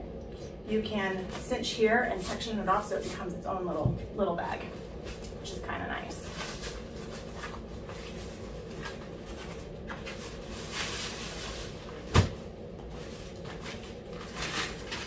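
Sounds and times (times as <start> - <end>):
nylon sack rustling: 6.2 - 15.0.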